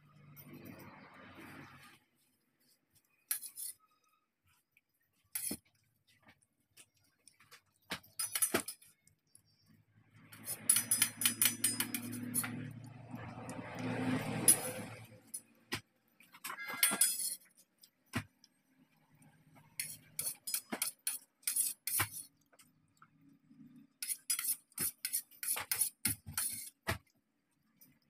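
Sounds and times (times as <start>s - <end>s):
steel bowl clinking on floor: 10.4s - 12.8s, 16.5s - 17.5s.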